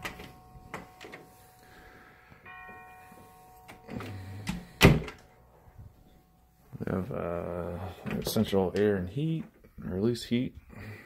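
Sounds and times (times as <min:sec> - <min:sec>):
faint steady ringing tones: 0:00.0 - 0:09.4
closet door banging shut: 0:04.5 - 0:05.2.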